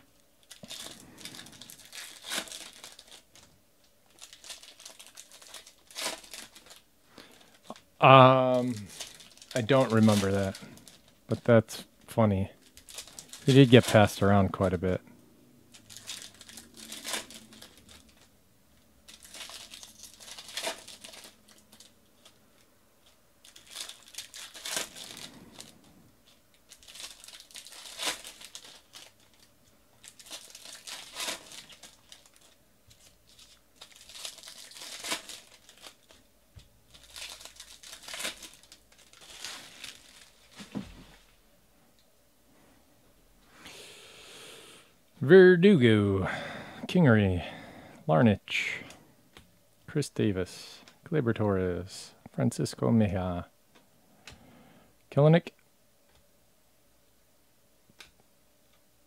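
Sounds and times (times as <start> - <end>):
foil wrappers crinkling and tearing: 0.4 - 11.6, 12.6 - 15.0, 15.7 - 18.3, 19.0 - 41.3
cards rustling: 0.5 - 3.5, 4.1 - 7.8, 8.5 - 11.5, 12.6 - 15.0, 15.7 - 18.3, 19.0 - 36.2, 36.9 - 41.2.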